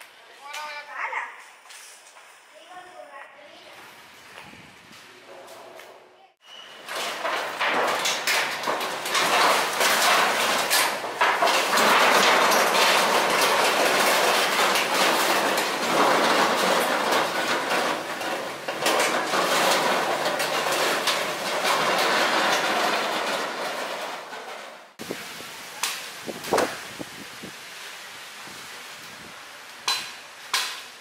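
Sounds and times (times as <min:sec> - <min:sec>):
metal sheets scraping and clattering: 0:05.2 - 0:25.2.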